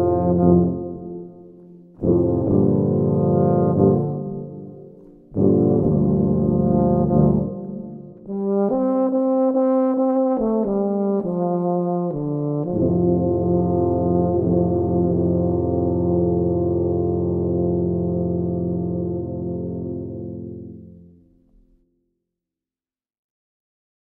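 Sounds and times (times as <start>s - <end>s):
euphonium and tuba ensemble: 0.0s - 21.2s.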